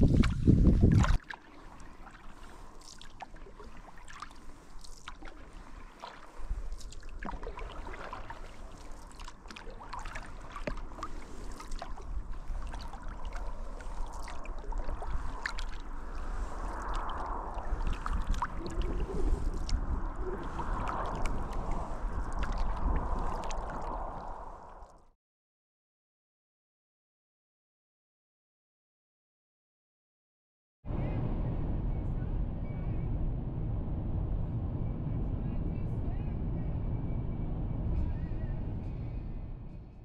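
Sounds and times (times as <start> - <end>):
paddle splashes and drips: 0.0 - 25.0
water lapping along kayak hull: 0.0 - 25.0
low rumble: 2.4 - 25.1, 30.9 - 40.0.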